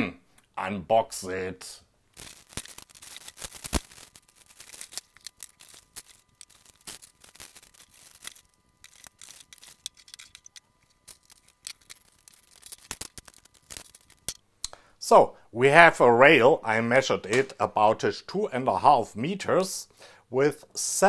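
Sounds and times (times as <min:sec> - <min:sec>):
plastic bags crinkling: 0:02.1 - 0:14.4
small parts clattering on table: 0:02.2 - 0:14.4.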